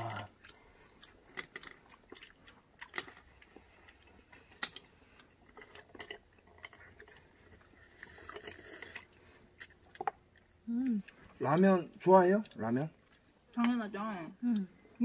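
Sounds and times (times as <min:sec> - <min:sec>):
chewing: 0:00.0 - 0:15.0
slurping noodles: 0:06.8 - 0:09.4.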